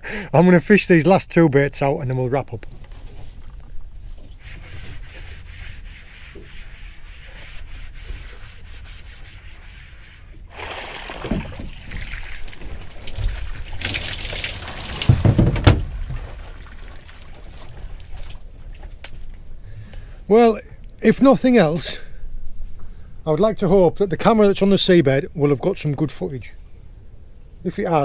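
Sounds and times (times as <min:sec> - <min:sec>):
bucket knocking: 0:10.5 - 0:17.2
water pouring from bucket: 0:10.5 - 0:19.0.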